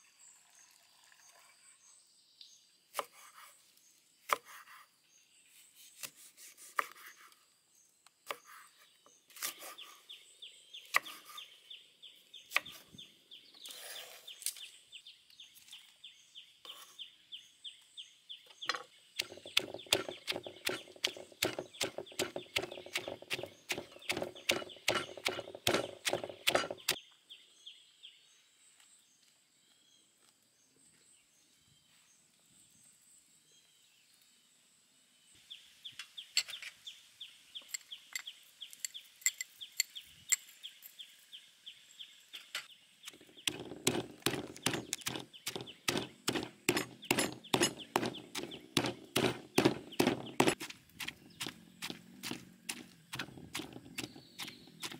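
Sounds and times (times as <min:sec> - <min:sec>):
knife chopping on wooden board: 0:06.0 - 0:07.2, 0:19.2 - 0:27.0, 0:43.2 - 0:54.9
pestle pounding in stone mortar: 0:19.2 - 0:27.0, 0:43.2 - 0:54.9.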